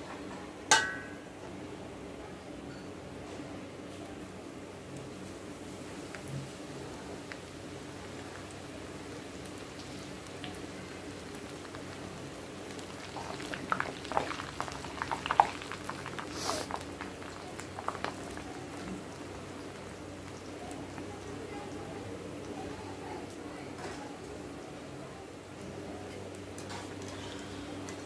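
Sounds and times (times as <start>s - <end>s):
crackles and pops of frying: 0.0s - 1.4s, 2.7s - 28.0s
hot oil sizzling and bubbling: 4.7s - 28.0s
brief hiss: 16.3s - 16.7s.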